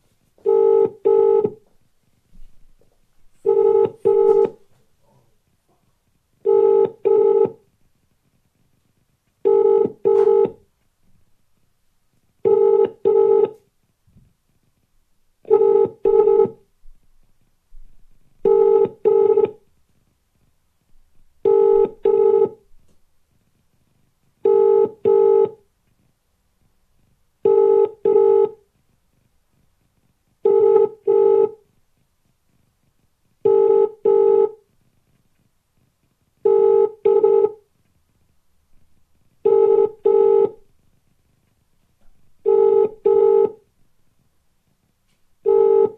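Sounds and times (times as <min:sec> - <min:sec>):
telephone ringback tone: 0:00.4 - 0:01.6, 0:03.4 - 0:04.6, 0:06.5 - 0:07.6, 0:09.5 - 0:10.6, 0:12.5 - 0:13.6, 0:15.5 - 0:16.6, 0:18.5 - 0:19.6, 0:21.5 - 0:22.6, 0:24.5 - 0:25.6, 0:27.5 - 0:28.6, 0:30.5 - 0:31.6, 0:33.5 - 0:34.6, 0:36.5 - 0:37.6, 0:39.5 - 0:40.6, 0:42.4 - 0:43.6, 0:45.5 - 0:45.9.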